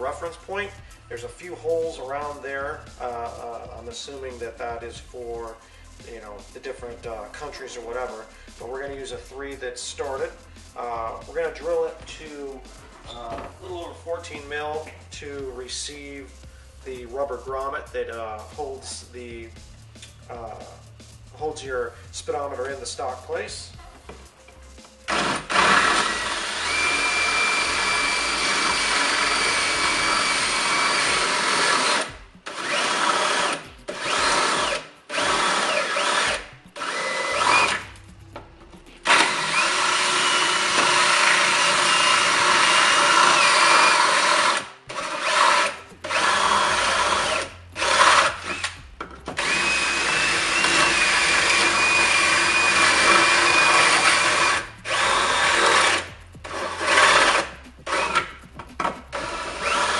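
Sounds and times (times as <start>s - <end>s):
cordless drill whining: 25.1s - 38.0s, 39.0s - 48.8s, 49.4s - 59.9s.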